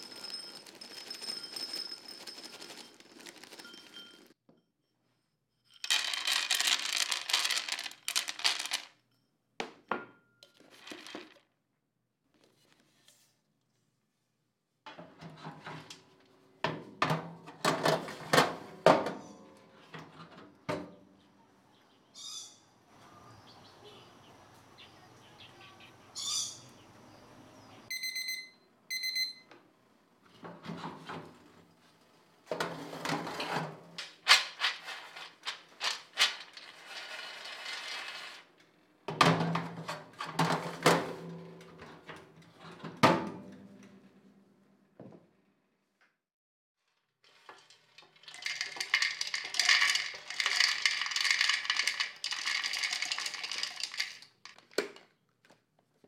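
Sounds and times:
short electronic oven beeps: 27.9 - 29.5
metal baking tray rattling on rack: 47.6 - 54.5.

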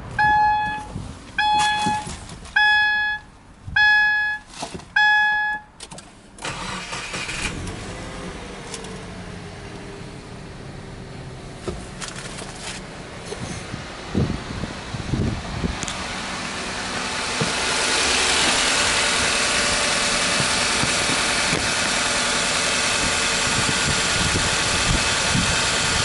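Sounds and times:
car engine starting and idling: 0.0 - 26.0
car warning chime beeping: 0.2 - 5.8.

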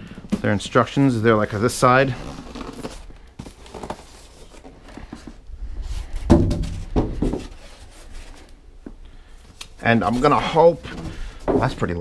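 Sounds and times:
styrofoam creak: 2.0 - 5.2
styrofoam knocking and rubbing: 6.2 - 7.9.

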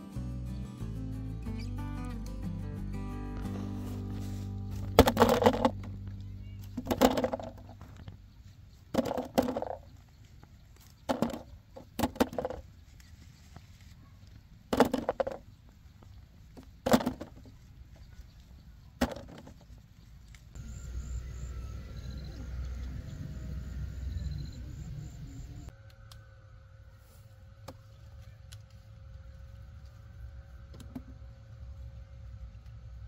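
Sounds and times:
outdoor background: 0.0 - 33.0
apples knocking into basket: 4.8 - 5.9.

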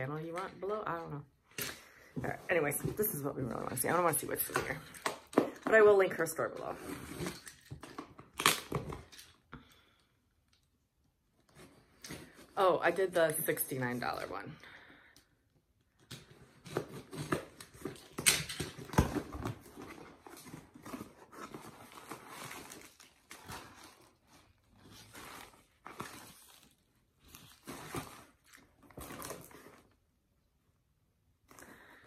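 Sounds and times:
packaging rustling and crinkling: 16.1 - 30.0.

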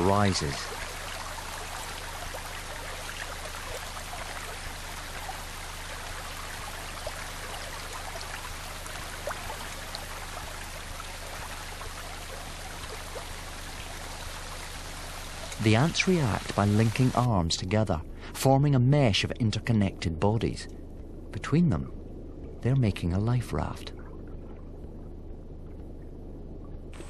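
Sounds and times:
water pouring and trickling: 0.0 - 17.3
faint water drips: 0.0 - 18.3.

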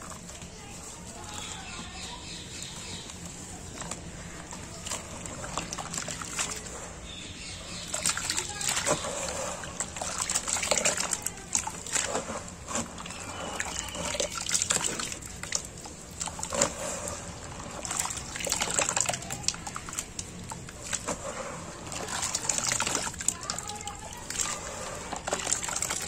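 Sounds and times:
wet cement squelching and sloshing: 0.0 - 26.0.

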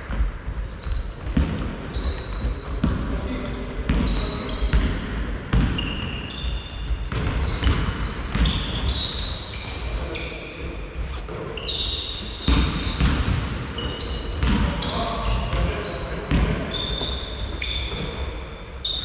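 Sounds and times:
basketball bouncing on floor: 0.1 - 5.9, 7.0 - 8.8, 12.4 - 13.6, 14.4 - 14.8
sneakers squeaking on court: 0.1 - 19.0.

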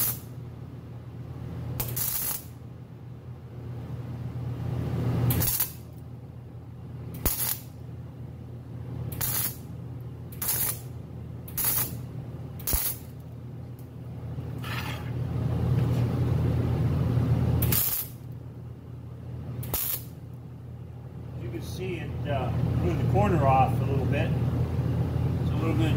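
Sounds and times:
welding arc crackling: 0.0 - 0.4, 1.8 - 2.6, 5.2 - 6.0, 7.2 - 7.8, 9.1 - 13.3, 17.6 - 18.4, 19.6 - 20.2
steady low hum: 0.0 - 25.9.

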